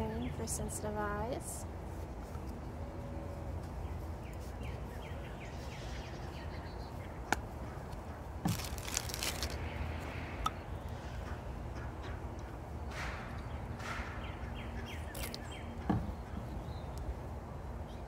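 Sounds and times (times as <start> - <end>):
outdoor background noise: 0.0 - 18.0
plastic crinkling: 8.5 - 9.7.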